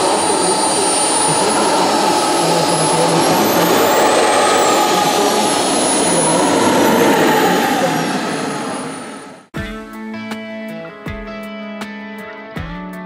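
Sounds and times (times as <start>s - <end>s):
jet turbine roar with whine: 0.0s - 9.5s.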